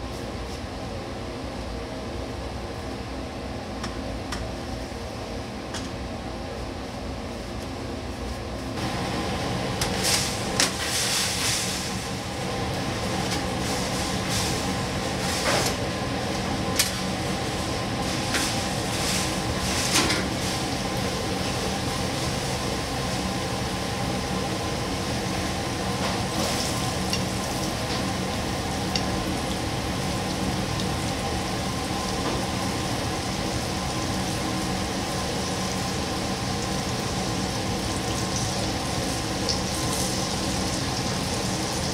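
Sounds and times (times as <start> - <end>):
constant machine hum: 0.0 - 41.9
oil bubbling and sizzling: 8.8 - 41.9.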